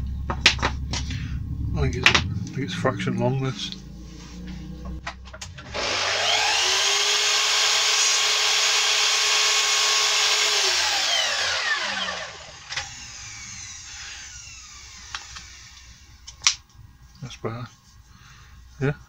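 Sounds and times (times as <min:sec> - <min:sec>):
power tool motor whine: 0:05.7 - 0:15.9.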